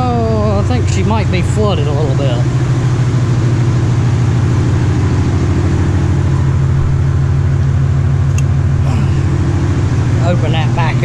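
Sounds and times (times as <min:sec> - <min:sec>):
vee eight engine idling: 0:00.0 - 0:11.0.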